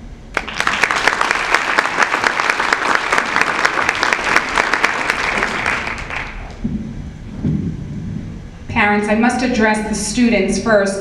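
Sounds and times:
audience applauding: 0:00.3 - 0:06.6.

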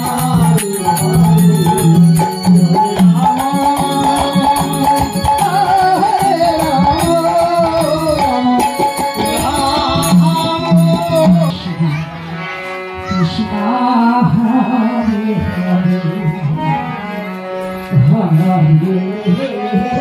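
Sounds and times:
hand cymbals ringing: 0:00.0 - 0:11.4
drums beaten in steady rhythm: 0:00.0 - 0:12.0
voices singing devotional melody: 0:00.0 - 0:20.0.

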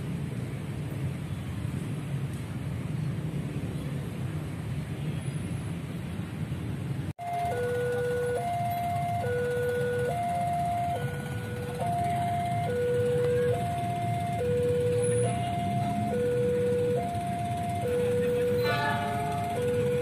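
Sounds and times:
two-tone level crossing alarm: 0:07.2 - 0:20.0.

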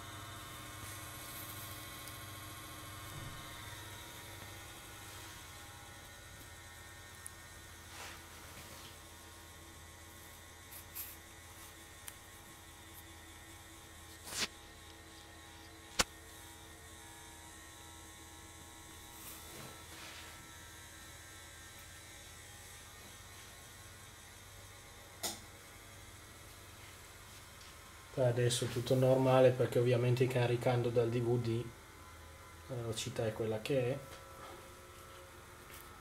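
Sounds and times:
desktop computer hum: 0:00.0 - 0:36.0.

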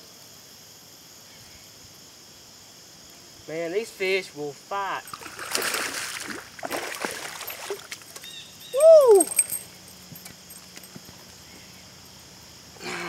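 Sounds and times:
fish splashing at the surface: 0:05.0 - 0:08.2
short rising and falling call: 0:08.7 - 0:09.6.

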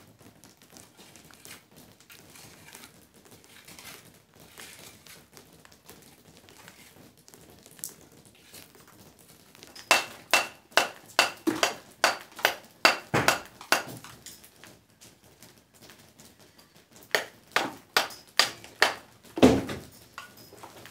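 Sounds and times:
hammer striking stone: 0:09.8 - 0:14.1, 0:17.1 - 0:19.0.

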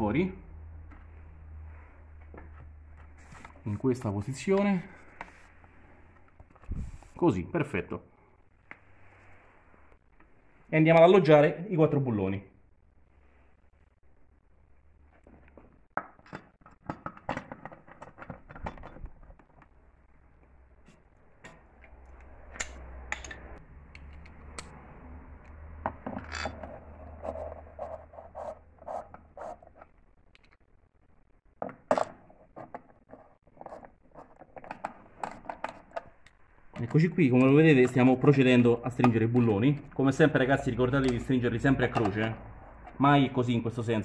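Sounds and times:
metal bolts clinking and scraping: 0:22.5 - 0:24.4, 0:26.1 - 0:26.8.

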